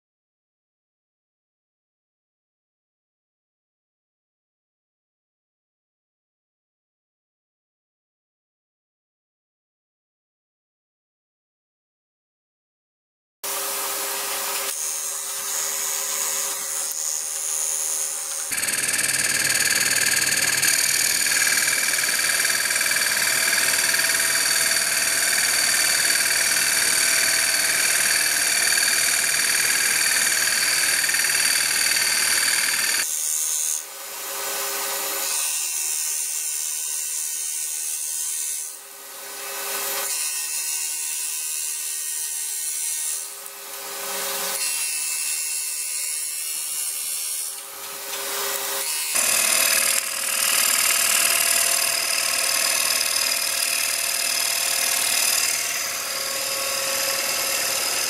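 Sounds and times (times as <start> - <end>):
tool cutting wood: 13.4 - 58.0
lathe spindle whine: 13.6 - 33.0, 48.4 - 58.0.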